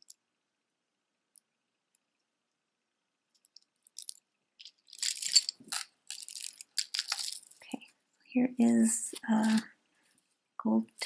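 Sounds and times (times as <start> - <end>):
jewelry clicking and clinking: 3.3 - 7.8.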